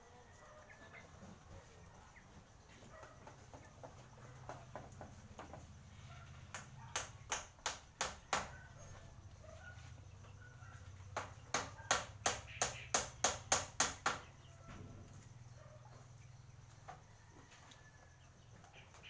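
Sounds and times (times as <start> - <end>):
hammer striking bamboo panel: 7.0 - 8.5, 11.2 - 14.3.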